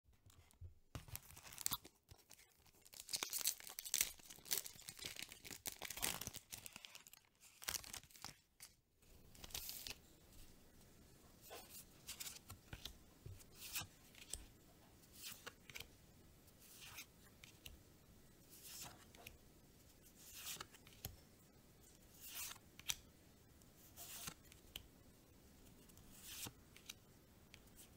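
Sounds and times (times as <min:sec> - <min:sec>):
foil wrapper tearing and crinkling: 0:01.0 - 0:08.4
cards rustling and clicking: 0:11.5 - 0:14.5, 0:15.1 - 0:15.9, 0:20.2 - 0:21.1, 0:23.9 - 0:24.9, 0:25.7 - 0:27.9.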